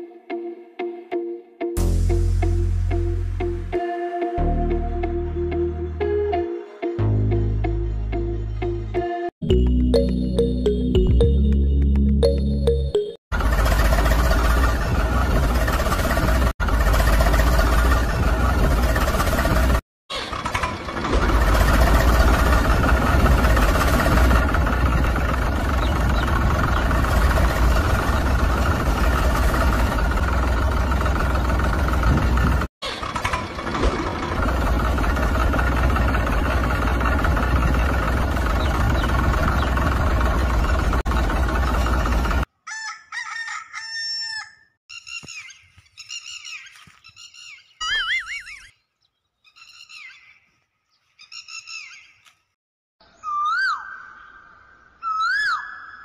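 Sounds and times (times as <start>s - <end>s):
engine humming: 4.4s - 42.5s
bird-like calls: 44.2s - 52.3s, 53.0s - 56.0s.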